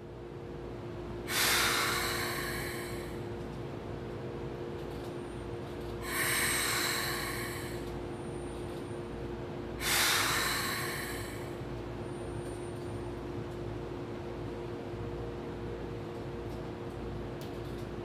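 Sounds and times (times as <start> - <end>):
train equipment humming: 0.0 - 18.0
compressed air hiss: 1.3 - 3.2, 6.0 - 7.8, 9.8 - 11.5.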